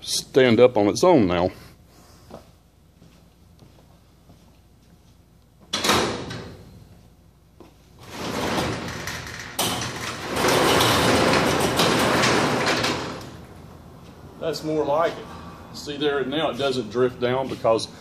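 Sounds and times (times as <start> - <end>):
steel door panels rattling up: 8.0 - 13.7.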